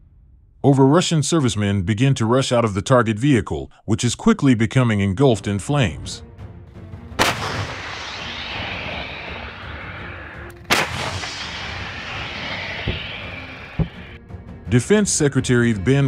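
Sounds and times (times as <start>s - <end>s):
heavy blasts with rolling rumble: 7.2s - 14.2s.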